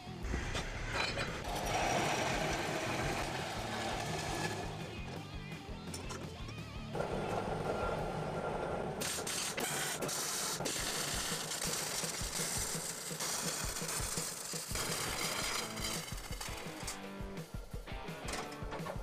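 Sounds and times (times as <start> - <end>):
band saw cutting steel: 0.2 - 5.2, 7.0 - 17.0.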